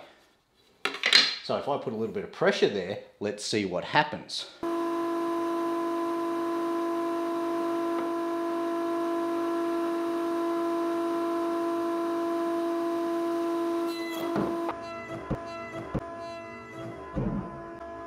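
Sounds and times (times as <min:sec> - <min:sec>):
router high-pitched whine: 0:04.6 - 0:14.8.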